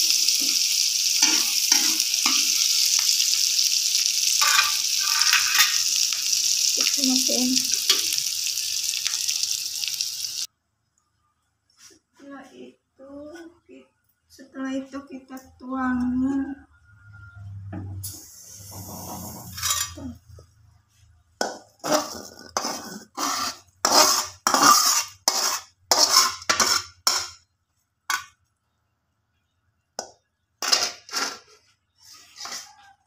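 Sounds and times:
metal spatula scraping frying pan: 0.0 - 10.5, 18.0 - 20.3, 21.8 - 27.4, 30.6 - 32.8.

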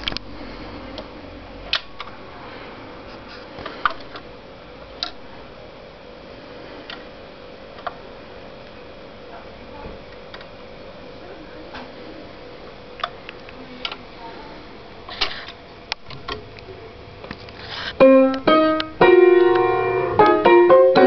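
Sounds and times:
turntable hum and hiss: 0.0 - 21.0
record clicks: 5.0 - 5.2.

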